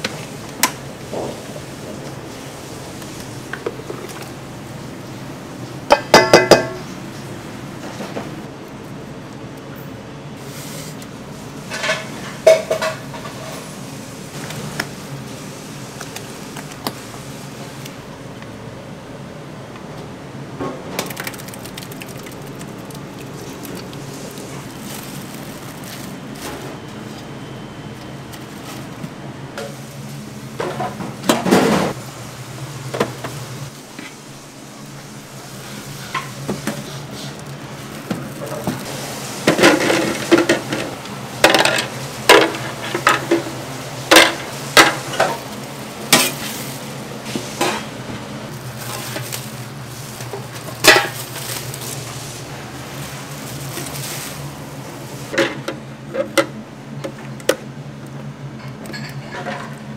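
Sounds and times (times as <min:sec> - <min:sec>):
low kitchen hum: 0:00.0 - 0:59.9
containers clacking: 0:20.7 - 0:26.8, 0:36.0 - 0:52.2
plastic wrap rustling: 0:21.0 - 0:29.1, 0:34.8 - 0:40.7, 0:45.0 - 0:47.8, 0:48.5 - 0:55.4.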